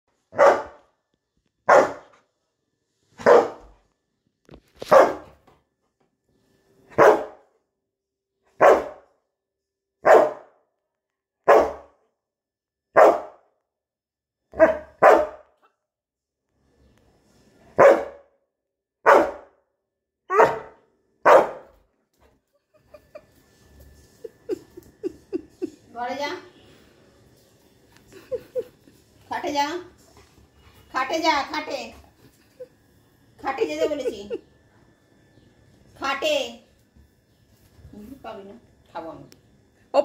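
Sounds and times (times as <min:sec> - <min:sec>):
dog barking: 0:00.3 - 0:00.9, 0:01.6 - 0:02.2, 0:03.2 - 0:03.7, 0:04.8 - 0:05.4, 0:07.0 - 0:07.4, 0:08.6 - 0:09.1, 0:10.0 - 0:10.6, 0:11.4 - 0:11.9, 0:13.0 - 0:13.4, 0:14.5 - 0:15.8, 0:17.8 - 0:18.3, 0:19.0 - 0:19.6, 0:20.3 - 0:21.7.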